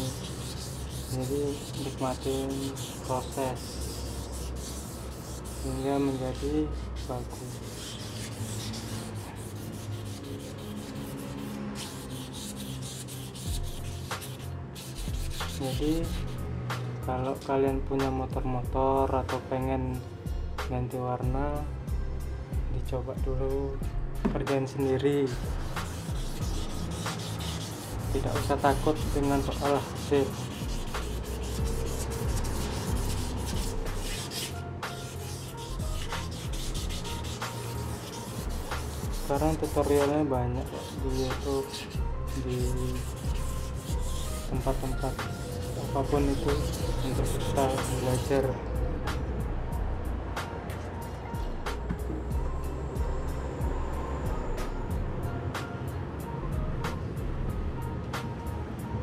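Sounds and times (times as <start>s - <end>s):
sandpaper rubbing: 0.0s - 16.4s, 25.2s - 48.5s.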